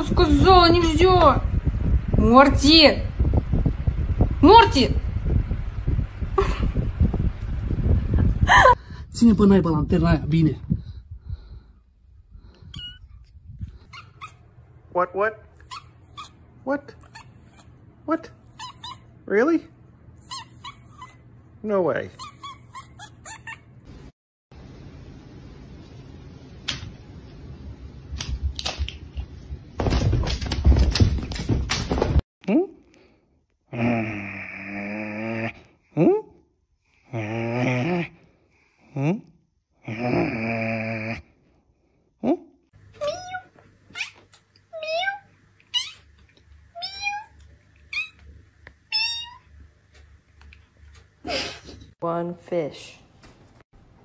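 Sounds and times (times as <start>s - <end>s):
rustling noise: 25.3s - 32.2s
cat meowing: 46.8s - 48.3s.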